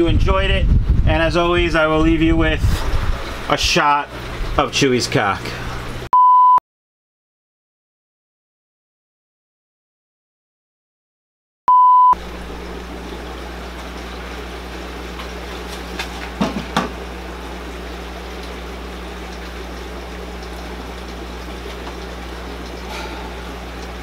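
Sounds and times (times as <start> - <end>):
aquarium pumps and filters humming: 0.0 - 6.1, 12.2 - 24.0
loud beep tone: 6.2 - 6.6, 11.7 - 12.2.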